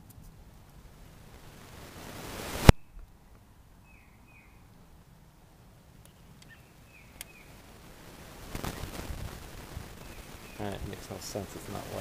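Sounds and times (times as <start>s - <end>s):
bird chirping faintly: 2.7s - 4.8s, 6.0s - 7.6s, 9.9s - 10.8s.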